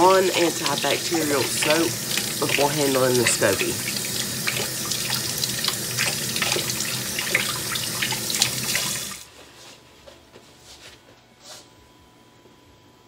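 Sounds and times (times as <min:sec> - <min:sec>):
hands washing under water: 0:00.0 - 0:09.2
tap running into sink: 0:00.4 - 0:09.1.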